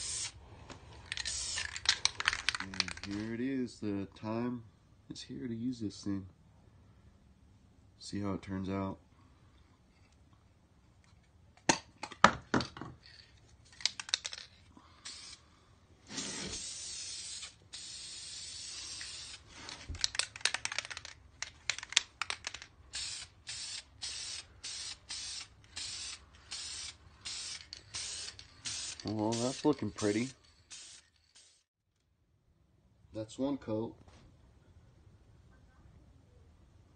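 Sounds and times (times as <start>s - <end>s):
aerosol can spraying: 0.0s - 0.4s, 1.1s - 1.8s, 15.0s - 15.4s, 16.1s - 20.2s, 22.9s - 31.7s
spray can clicks and rattles: 1.0s - 3.3s, 13.0s - 15.4s, 16.2s - 31.6s.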